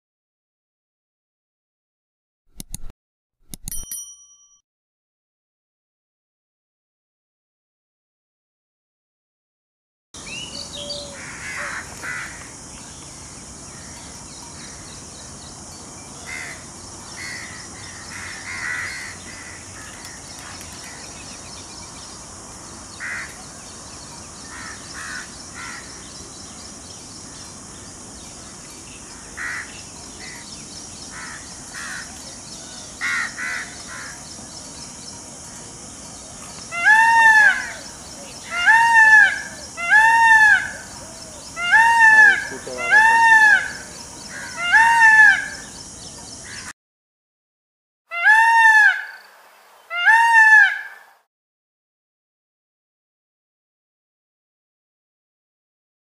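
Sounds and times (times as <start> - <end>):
harsh peacock calls: 10.2 - 12.6, 16.2 - 21.6, 23.0 - 23.6, 24.4 - 26.1, 28.4 - 34.5, 36.6 - 45.8, 48.1 - 49.2, 49.8 - 51.2
steady high hiss: 10.2 - 46.6.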